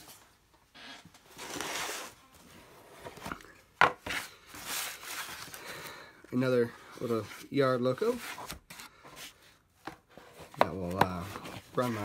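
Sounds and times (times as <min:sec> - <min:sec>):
cardboard box sliding and rustling: 0:01.3 - 0:03.4.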